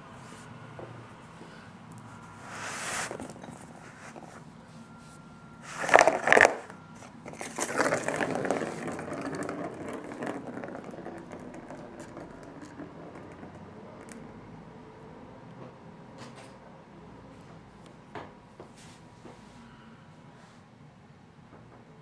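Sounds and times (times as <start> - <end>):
ball rattling around plastic track: 5.7 - 14.3.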